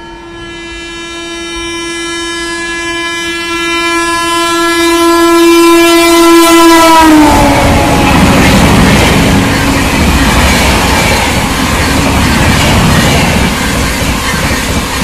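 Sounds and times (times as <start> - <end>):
locomotive horn blast: 0.0 - 10.0
passing train clatter: 3.2 - 15.0.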